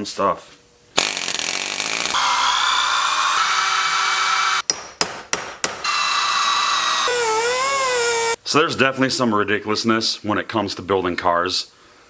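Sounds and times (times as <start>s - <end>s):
pneumatic air hammer chattering: 1.0s - 4.6s.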